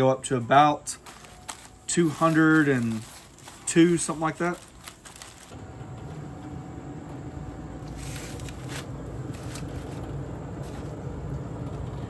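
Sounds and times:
grill fan humming: 0.0s - 12.0s
clicks and rustles: 1.0s - 5.6s.

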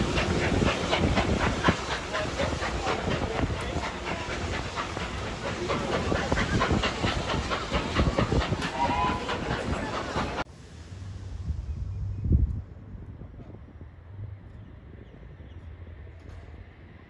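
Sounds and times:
steam hissing: 0.0s - 12.1s
steam train exhaust chuffs: 0.0s - 12.1s.

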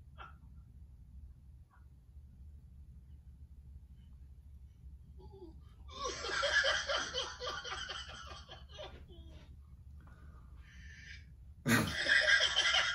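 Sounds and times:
faint breathing: 10.0s - 11.5s
man laughing in breathy pulses: 11.7s - 12.3s.

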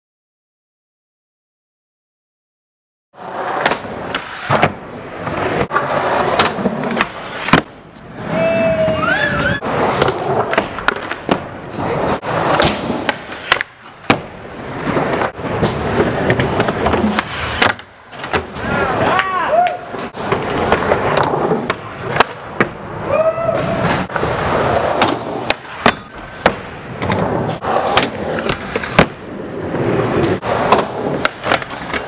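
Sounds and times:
skateboard trucks grinding metal: 3.2s - 19.1s, 23.7s - 32.0s
skateboard clacks: 3.2s - 22.9s, 23.5s - 32.0s
skateboard wheels rolling on concrete: 3.2s - 32.0s.

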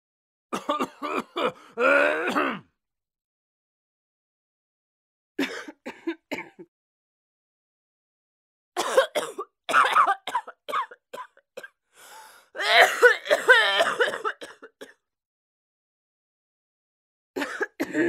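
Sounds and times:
person clearing throat: 0.6s - 2.7s, 17.4s - 18.0s
person coughing: 0.6s - 2.7s, 5.4s - 6.7s, 8.8s - 11.7s, 12.6s - 15.0s, 17.4s - 18.0s.

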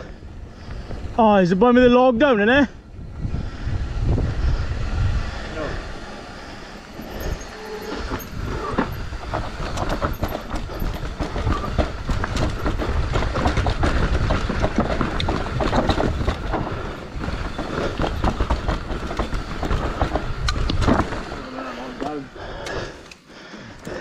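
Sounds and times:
bike tyres rumbling over dirt: 0.0s - 23.0s
bike chain and frame clattering: 5.5s - 23.3s.

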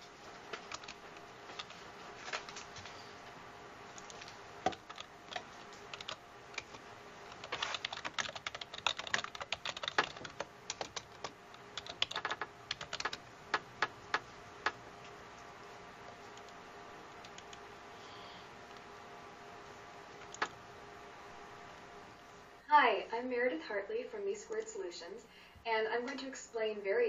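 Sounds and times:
typing on computer keyboard: 0.5s - 1.8s, 4.0s - 14.8s, 17.2s - 17.6s, 20.2s - 20.6s.

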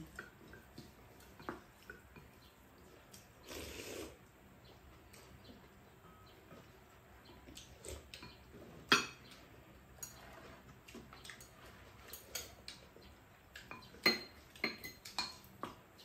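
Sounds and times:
utensils clinking on ceramic bowls: 7.3s - 15.6s.

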